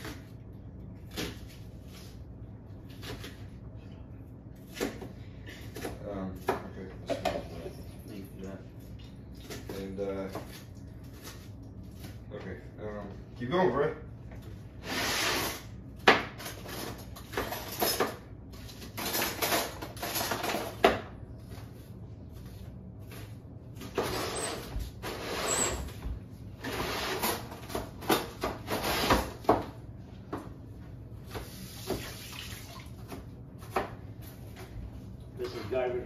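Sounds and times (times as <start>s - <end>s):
tap water running: 31.4s - 33.2s.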